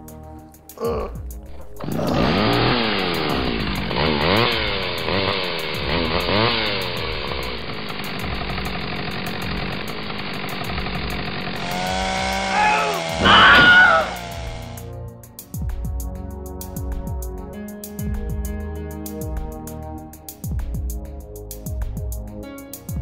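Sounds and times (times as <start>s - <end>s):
chainsaw revving: 1.5s - 14.9s.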